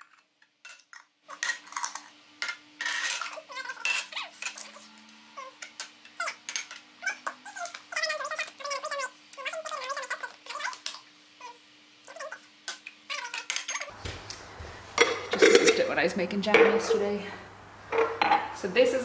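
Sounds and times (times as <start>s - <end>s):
animal whining: 3.4s - 5.6s.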